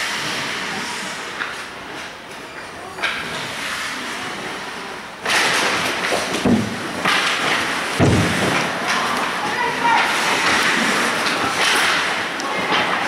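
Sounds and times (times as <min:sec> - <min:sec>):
skate blades scraping ice: 0:03.1 - 0:13.0.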